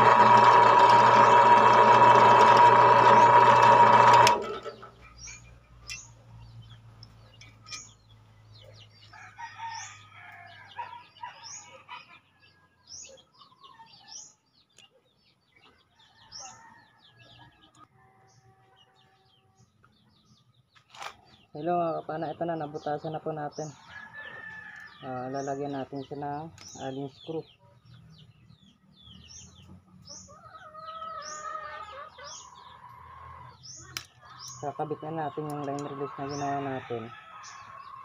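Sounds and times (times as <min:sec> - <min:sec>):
drill press drilling metal: 0:00.0 - 0:04.8
rooster crowing: 0:09.1 - 0:10.9.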